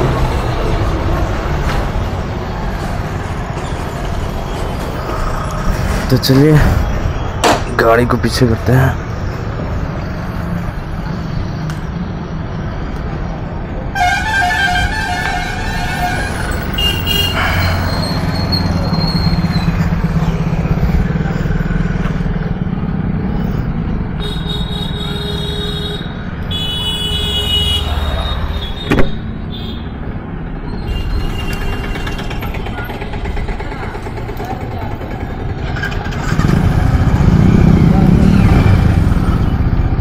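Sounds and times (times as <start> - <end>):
traffic engine rumble: 0.0 - 40.0
vehicle horns honking: 13.9 - 17.9, 24.2 - 30.0.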